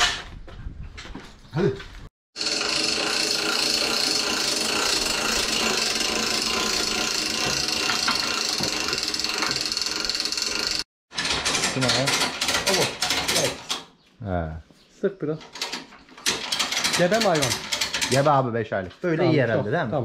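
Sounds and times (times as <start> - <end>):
power tool whining: 2.4 - 10.9.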